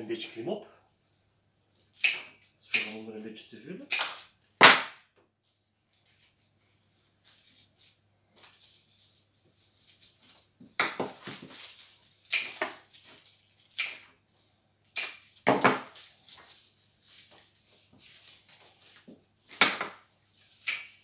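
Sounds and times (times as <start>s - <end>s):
plant stems snipped: 13.7s - 14.0s, 20.6s - 21.0s.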